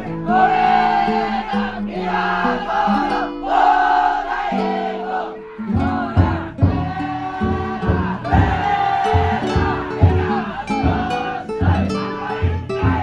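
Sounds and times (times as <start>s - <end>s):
crowd chanting and singing: 0.0s - 13.0s
heavy drum beats: 5.6s - 13.0s.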